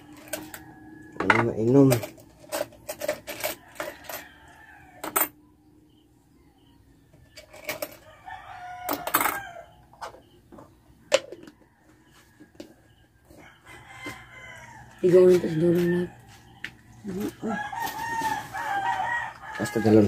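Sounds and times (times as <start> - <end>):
rooster crowing: 0.0 - 2.0, 3.3 - 6.0, 7.8 - 10.4, 11.3 - 20.0.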